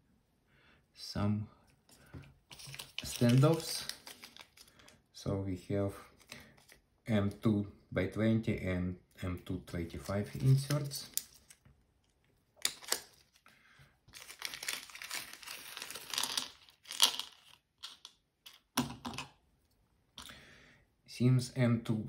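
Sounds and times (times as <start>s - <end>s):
plastic bag crinkling: 2.5s - 4.9s, 14.1s - 18.1s.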